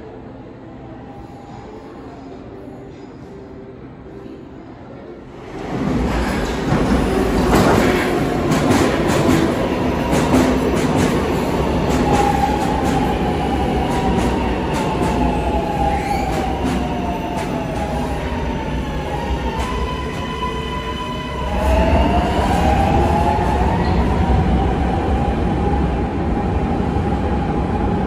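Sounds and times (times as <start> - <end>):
train wheels rushing and clicking: 5.9 - 18.1.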